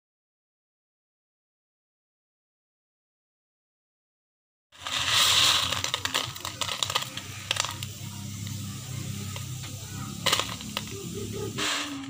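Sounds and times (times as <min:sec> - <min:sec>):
dry rice rustling in plastic basin: 0:04.8 - 0:12.0
steady low hum: 0:04.8 - 0:12.0.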